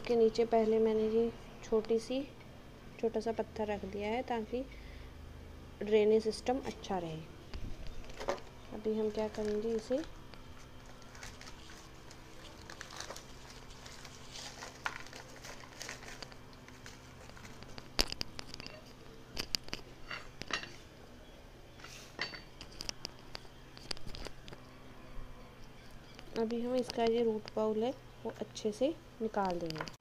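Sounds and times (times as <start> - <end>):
plastic bag crinkling: 7.8 - 20.4.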